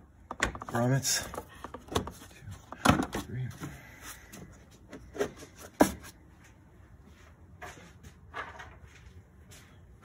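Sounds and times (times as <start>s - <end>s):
plastic parts knocking and clicking: 0.2s - 3.3s.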